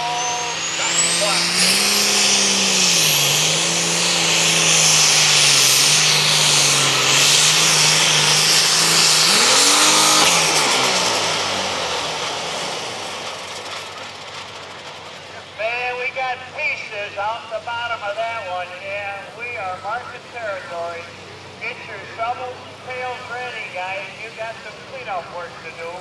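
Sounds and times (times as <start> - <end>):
diesel engine under load: 0.0 - 26.0.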